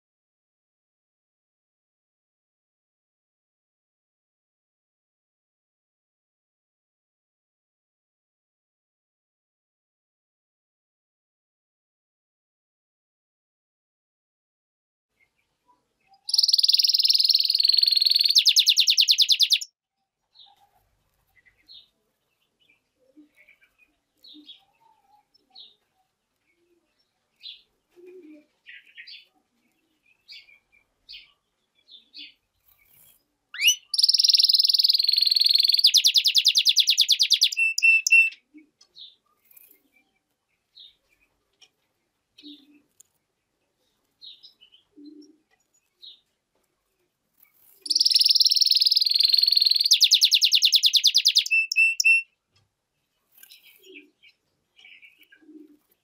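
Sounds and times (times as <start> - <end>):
soft bird chirps: 15.1 - 52.4, 53.1 - 56.0.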